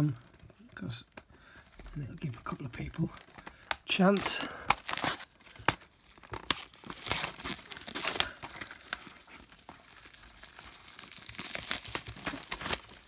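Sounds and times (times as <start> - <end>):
shrink-wrap crinkling and tearing: 0.0 - 13.0.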